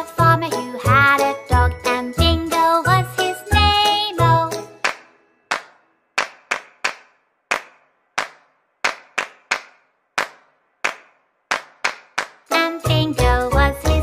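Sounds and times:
sharp rhythmic hand claps: 0:04.8 - 0:12.5.

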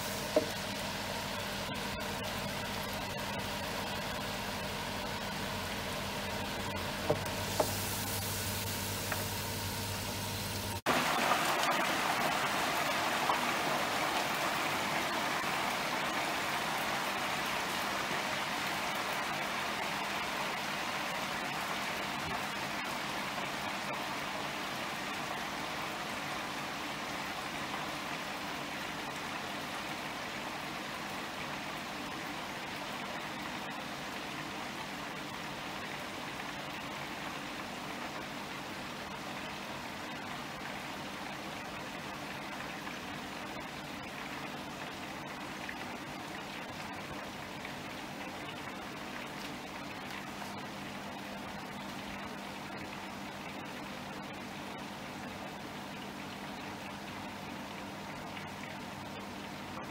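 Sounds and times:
chips sizzling in hot oil: 0:00.0 - 0:16.6
low electrical hum: 0:00.0 - 0:59.9.

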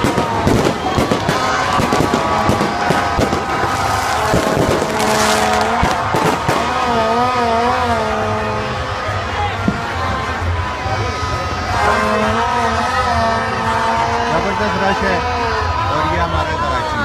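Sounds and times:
fireworks bangs and crackling: 0:00.0 - 0:08.8, 0:09.6 - 0:10.2
horns blowing sustained tones: 0:00.0 - 0:16.9.

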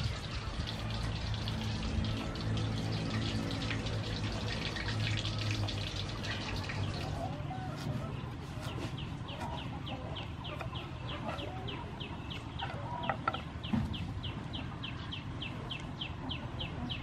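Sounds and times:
chick peeping: 0:06.3 - 0:17.0
hen clucking: 0:06.4 - 0:14.0.

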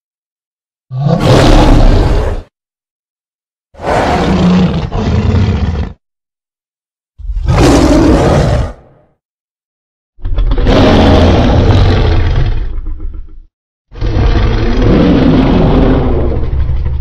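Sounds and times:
monster roars: 0:00.9 - 0:02.5, 0:03.8 - 0:06.0, 0:07.2 - 0:09.0, 0:10.2 - 0:13.3, 0:14.0 - 0:17.0.

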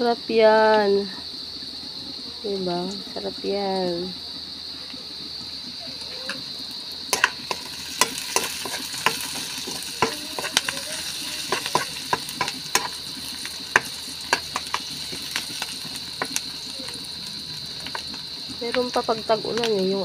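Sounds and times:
onions sizzling in oil: 0:00.0 - 0:20.0
metal spatula scraping pan: 0:07.1 - 0:15.6.

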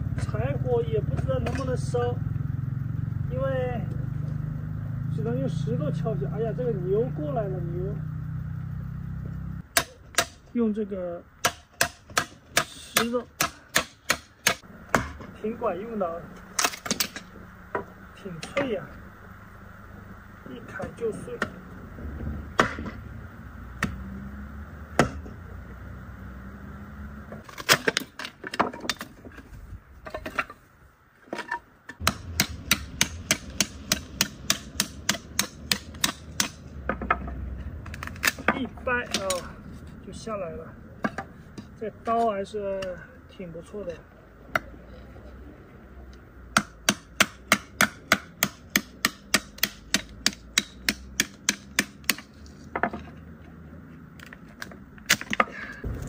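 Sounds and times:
wood cracking: 0:27.4 - 0:29.4, 0:54.1 - 0:56.0.

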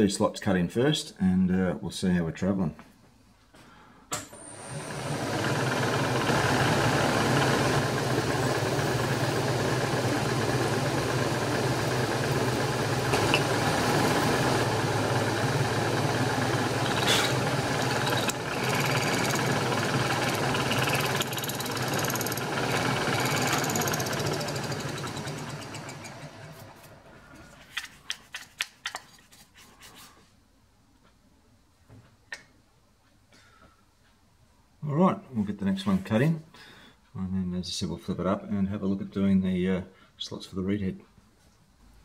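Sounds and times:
spindle motor humming: 0:04.4 - 0:26.8.

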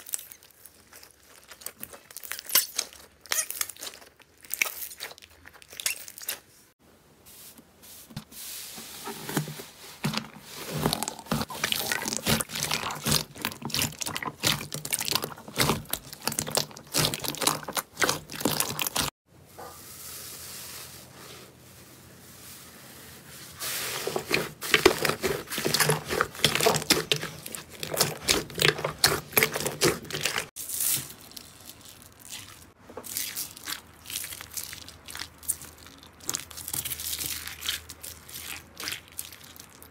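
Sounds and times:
slime squeezed by hand: 0:10.7 - 0:19.1.

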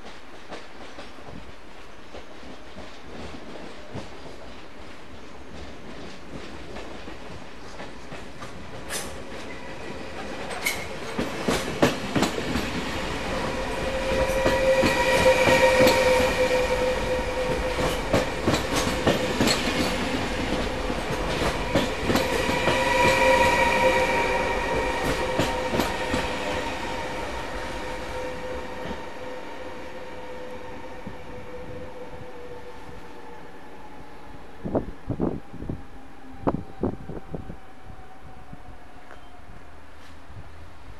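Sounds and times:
train wheels clicking over rails: 0:00.0 - 0:29.1
train steady whine: 0:00.0 - 0:40.9.

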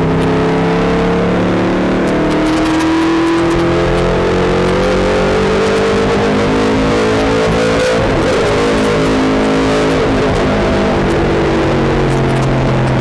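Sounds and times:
race car engine at high revs: 0:00.0 - 0:13.0.

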